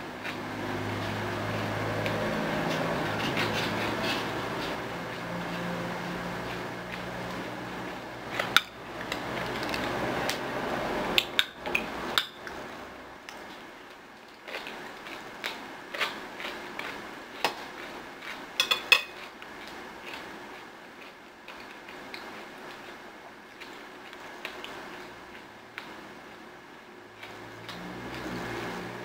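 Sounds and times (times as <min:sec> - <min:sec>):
chewing: 0:00.2 - 0:10.4, 0:13.3 - 0:26.0, 0:27.1 - 0:28.5
spoon clinking against glass bowl: 0:18.6 - 0:19.2.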